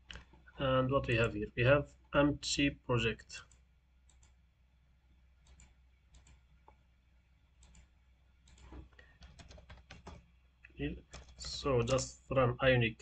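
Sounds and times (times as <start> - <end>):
mouse and keyboard clicks: 5.4 - 6.8, 7.6 - 7.9, 8.5 - 10.2, 11.1 - 12.0.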